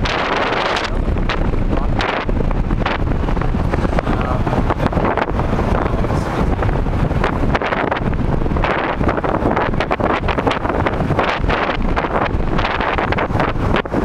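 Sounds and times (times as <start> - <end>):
car rumbling on road: 0.0 - 14.0
wind buffeting microphone: 0.0 - 14.0.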